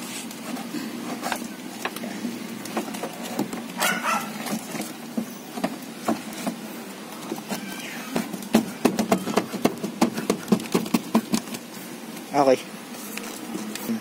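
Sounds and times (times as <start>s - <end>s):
animal call: 3.8s - 4.5s, 7.5s - 9.6s.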